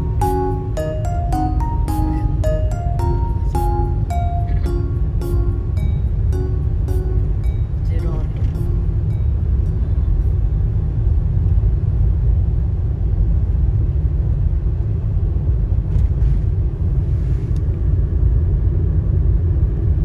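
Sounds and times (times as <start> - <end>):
road and engine rumble inside car: 0.0 - 20.0.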